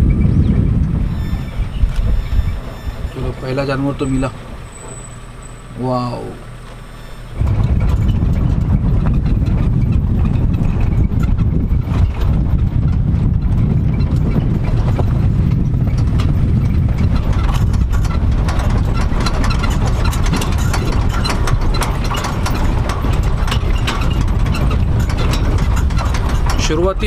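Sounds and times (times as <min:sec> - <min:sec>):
jeep engine and road rumble: 0:00.0 - 0:27.0
small rattles and knocks: 0:06.6 - 0:27.0.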